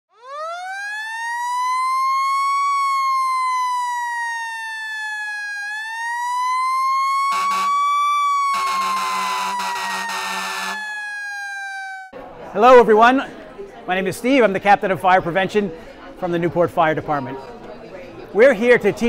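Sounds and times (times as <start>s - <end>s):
fire engine siren wailing: 0.1s - 12.2s
low buzzy horn blast: 7.3s - 7.8s, 8.5s - 10.8s.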